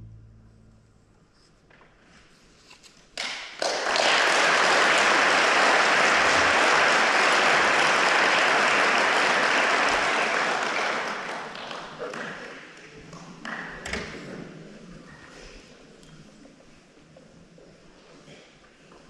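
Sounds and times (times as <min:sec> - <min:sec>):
audience applause: 0:03.2 - 0:13.6.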